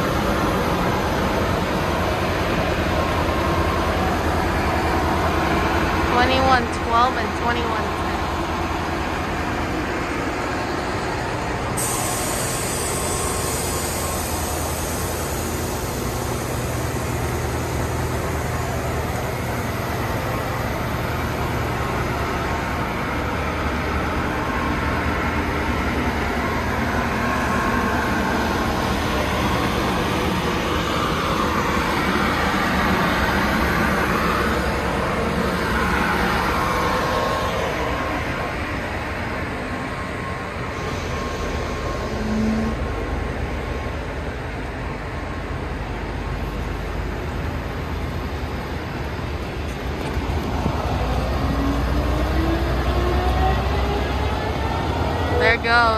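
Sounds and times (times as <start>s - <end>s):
diesel locomotive engine rumble: 0.0s - 55.9s
high hiss: 11.7s - 22.0s.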